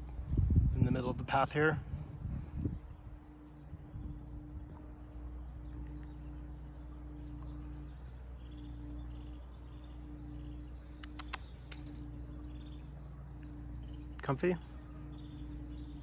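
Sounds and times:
low steady hum: 0.0s - 16.0s
faint bird chirps: 2.5s - 16.0s
sharp clicks: 11.0s - 12.0s.

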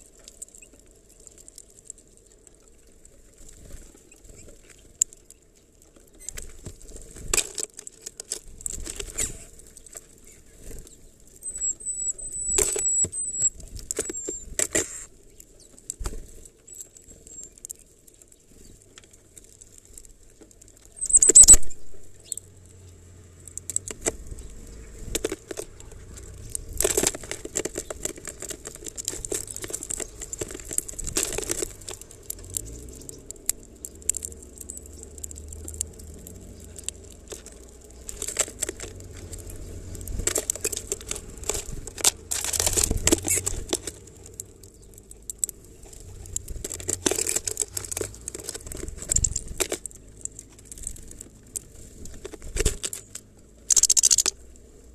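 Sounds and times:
birds tapping and rustling seeds: 0.0s - 54.9s
high thin bird chirps: 11.4s - 15.0s, 21.0s - 22.5s, 53.7s - 54.3s
wing flutters: 53.7s - 54.4s.

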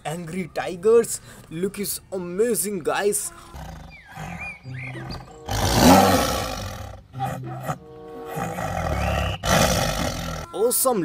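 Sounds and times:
background music: 0.0s - 11.0s
tiger roaring: 3.5s - 10.5s.

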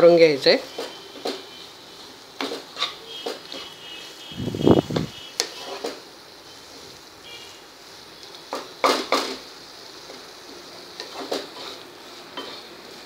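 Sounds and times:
wooden spatula scraping a pan: 2.4s - 4.2s, 5.4s - 6.0s, 10.1s - 13.0s.

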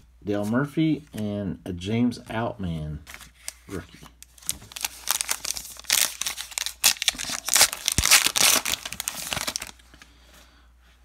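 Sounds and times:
wrapper crinkling and tearing: 3.1s - 9.8s.

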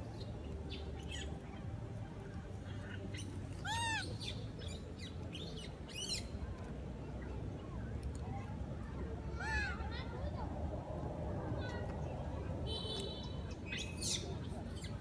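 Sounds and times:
higher monkey call: 2.9s - 4.4s
macaque coo: 3.6s - 4.1s.

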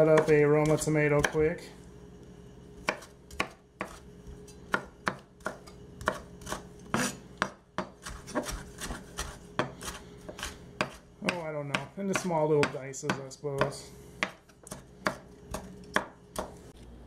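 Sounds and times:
knife chopping on wooden board: 0.0s - 1.5s, 2.8s - 4.0s, 4.7s - 16.6s
faint steady hum: 0.0s - 17.0s.

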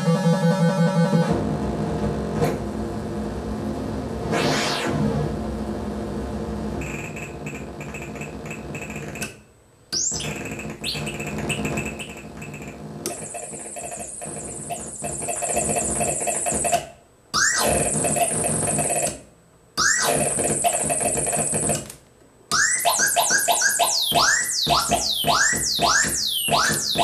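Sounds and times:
fast rising electronic sweep: 4.2s - 7.5s
harsh buzzing electronic noise: 6.7s - 9.4s, 10.0s - 19.2s, 19.8s - 21.9s, 22.5s - 27.0s.

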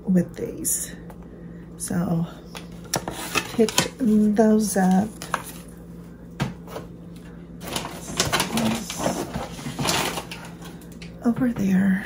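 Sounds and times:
rustling of handled items: 6.7s - 10.8s.

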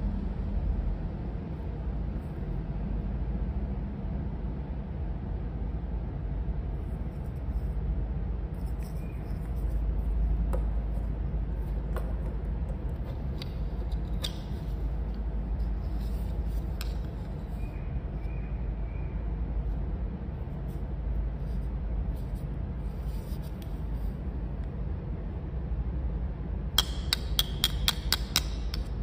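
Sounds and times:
low background rumble: 0.0s - 29.0s.

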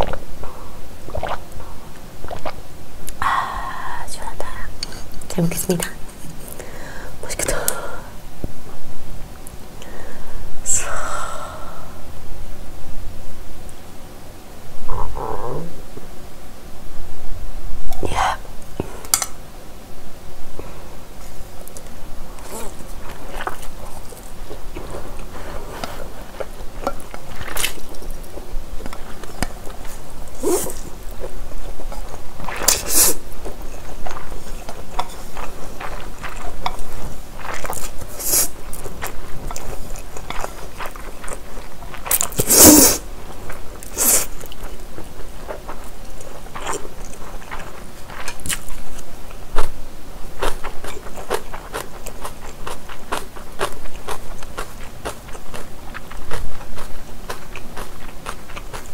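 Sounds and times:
slurping and chewing noodles: 1.1s - 1.4s, 22.4s - 49.7s, 50.4s - 58.9s.

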